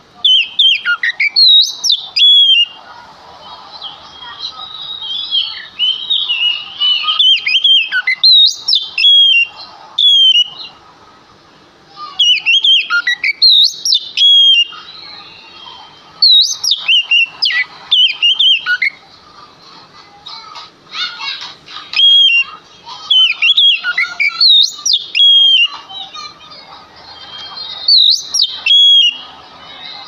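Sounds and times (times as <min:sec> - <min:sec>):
bird singing whistled notes: 0:00.2 - 0:02.8, 0:04.1 - 0:10.7, 0:12.2 - 0:15.1, 0:16.2 - 0:19.0, 0:21.9 - 0:22.5, 0:23.1 - 0:25.8, 0:27.8 - 0:29.3
soft bird warbling: 0:00.2 - 0:10.8, 0:12.2 - 0:19.0, 0:23.1 - 0:25.8, 0:27.6 - 0:29.4.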